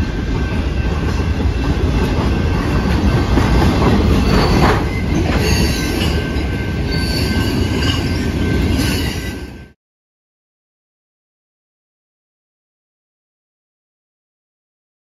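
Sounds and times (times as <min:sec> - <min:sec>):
train wheels rumbling on rail: 0:00.0 - 0:09.8
wheel squeals: 0:00.4 - 0:09.6.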